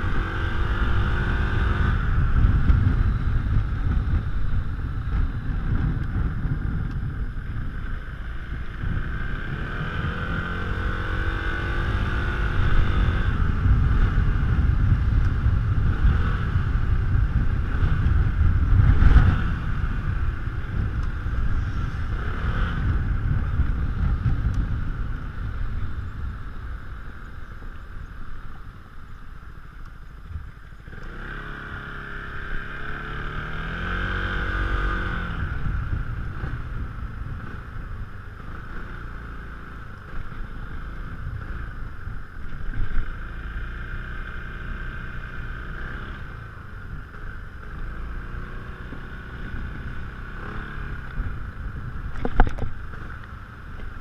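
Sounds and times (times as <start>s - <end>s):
wind on microphone: 0.0s - 54.0s.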